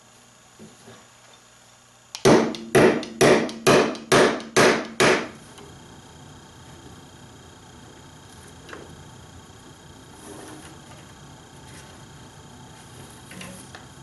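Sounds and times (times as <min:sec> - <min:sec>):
hammer striking tack into wood: 0:02.2 - 0:05.4.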